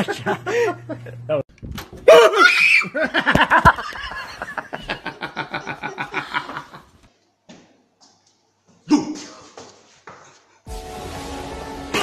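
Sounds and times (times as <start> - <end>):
person laughing: 2.1 - 6.9.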